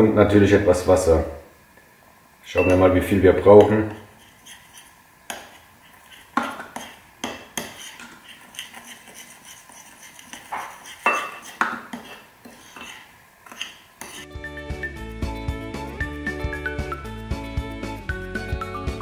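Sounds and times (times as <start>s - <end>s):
metal spoon scraping ceramic bowl: 3.5s - 14.3s.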